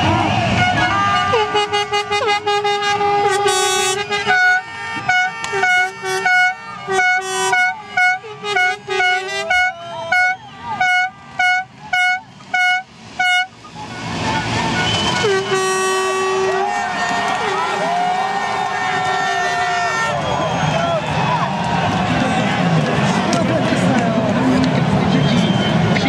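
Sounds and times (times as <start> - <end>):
plastic fan horn tooting: 0.6 - 17.6.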